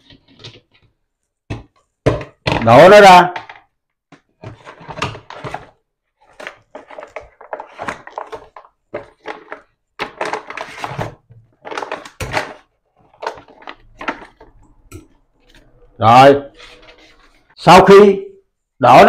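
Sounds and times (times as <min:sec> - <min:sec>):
plastic bag rustling: 0:04.4 - 0:14.5.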